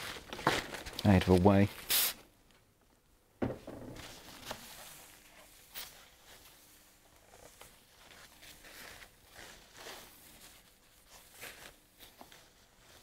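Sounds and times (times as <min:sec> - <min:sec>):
knock on workbench: 0:03.4 - 0:04.0
rustling: 0:03.6 - 0:13.0.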